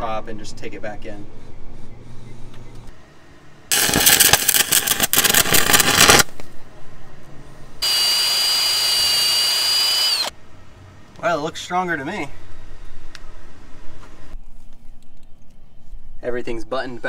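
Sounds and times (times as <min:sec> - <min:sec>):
welding arc crackling: 0:03.7 - 0:06.4, 0:07.8 - 0:10.3
cordless drill whining: 0:07.8 - 0:10.3.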